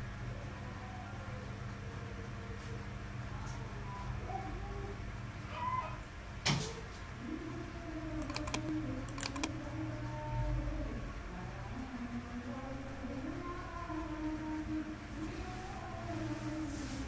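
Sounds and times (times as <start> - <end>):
steady low hum: 0.0 - 17.0
computer mouse clicks: 8.2 - 9.5.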